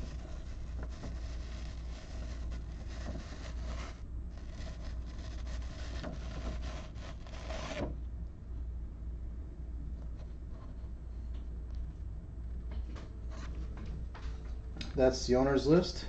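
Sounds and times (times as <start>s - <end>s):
rustling handling noise: 0.0s - 8.0s
steady low hum: 0.0s - 16.0s.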